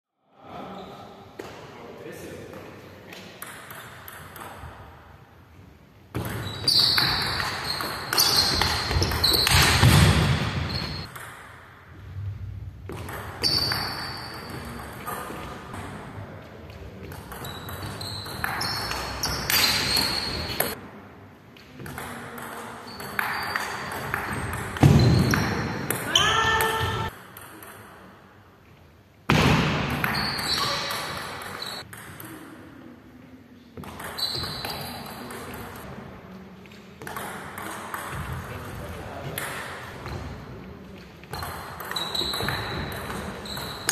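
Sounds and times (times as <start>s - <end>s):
table tennis ball clicking and bouncing: 3.2s - 4.9s, 6.1s - 11.7s, 17.0s - 20.8s, 21.8s - 26.1s, 29.9s - 32.6s, 37.0s - 38.5s, 41.3s - 43.9s.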